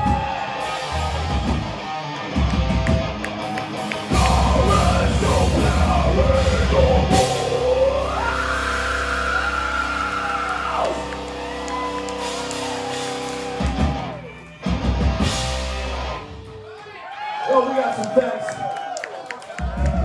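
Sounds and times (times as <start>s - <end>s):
busy drumming: 0.0s - 8.0s, 11.8s - 15.9s
heavy metal band playing live: 0.0s - 16.6s.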